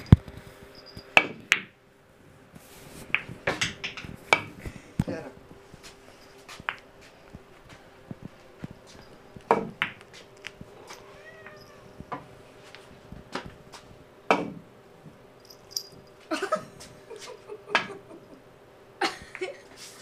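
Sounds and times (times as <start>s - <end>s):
faint steady hum: 0.0s - 20.0s
pool balls clacking: 0.9s - 1.8s, 3.1s - 5.1s, 8.8s - 10.7s, 14.2s - 14.7s.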